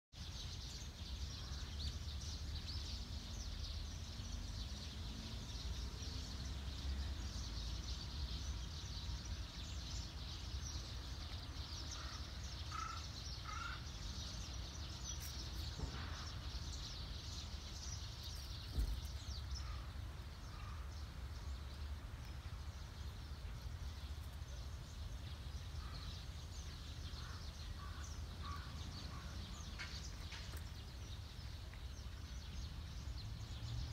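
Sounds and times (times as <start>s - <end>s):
small birds chirping: 0.1s - 33.9s
brief thump: 18.6s - 19.2s.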